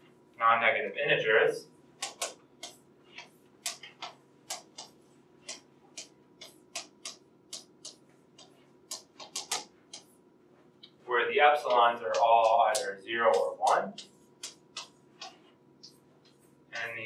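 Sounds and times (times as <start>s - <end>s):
faint room hum: 0.0s - 17.0s
chalk clicking on blackboard: 2.0s - 10.2s, 11.6s - 17.0s.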